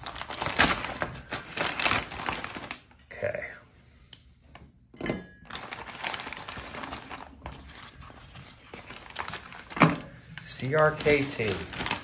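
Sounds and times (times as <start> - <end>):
plastic mailer rustling: 0.0 - 3.0, 5.5 - 12.0.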